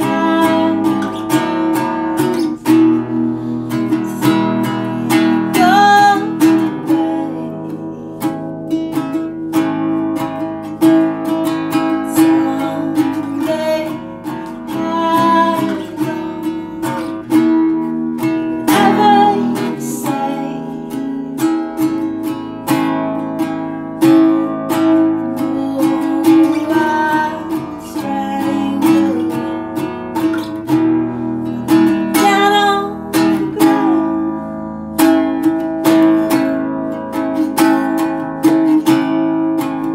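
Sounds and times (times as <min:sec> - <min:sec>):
acoustic guitar strumming: 0:00.0 - 0:39.9.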